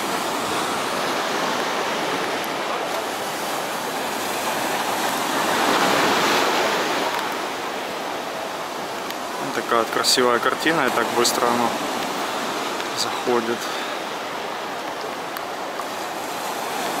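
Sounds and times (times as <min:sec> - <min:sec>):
small waves washing on shore: 0:00.0 - 0:17.0.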